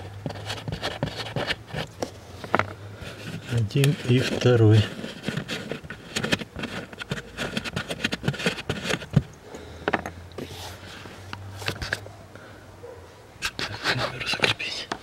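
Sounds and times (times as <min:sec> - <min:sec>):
plastic trim clicks and scrapes: 0:03.4 - 0:09.2.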